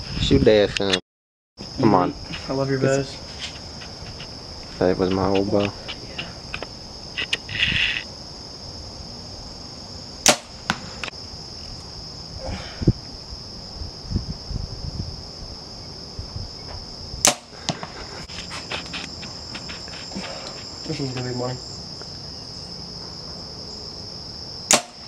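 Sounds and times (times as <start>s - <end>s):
crickets chirping: 0.0s - 1.0s, 1.6s - 25.0s
bow string snapping: 10.2s - 11.1s, 17.2s - 17.5s, 24.7s - 25.0s.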